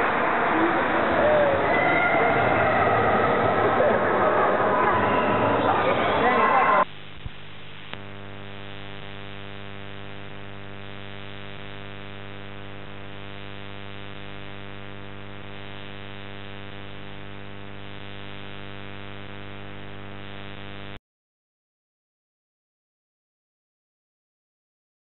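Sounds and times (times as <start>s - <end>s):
buzzy electrical mains hum: 2.0s - 21.0s.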